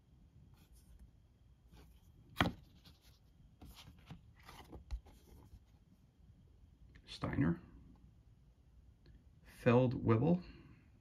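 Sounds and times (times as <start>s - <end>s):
cardboard scraping: 1.7s - 5.7s
cardboard tap: 2.4s - 2.7s.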